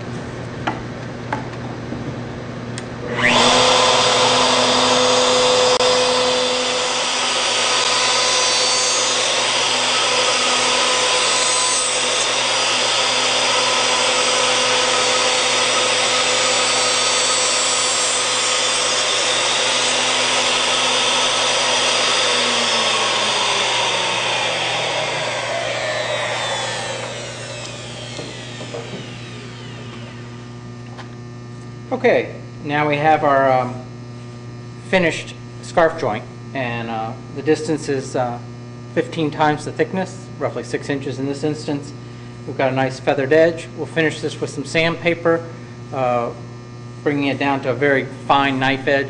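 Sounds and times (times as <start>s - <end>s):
electric wood router whining: 3.0s - 31.0s.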